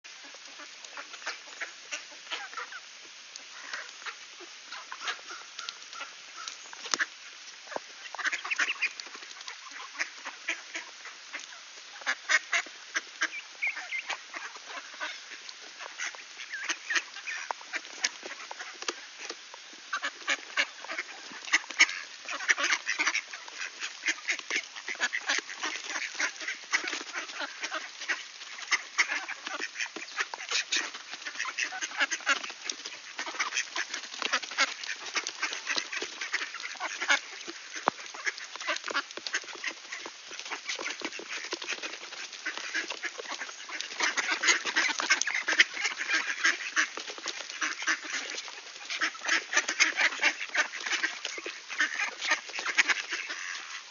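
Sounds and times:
duck calls: 0:03.5 - 0:19.3, 0:19.9 - 0:53.9
duck bills clicking and rattling: 0:24.0 - 0:53.7.

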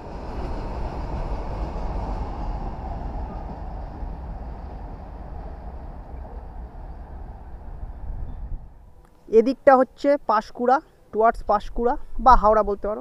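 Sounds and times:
freight train rumbling past: 0:00.0 - 0:09.0.

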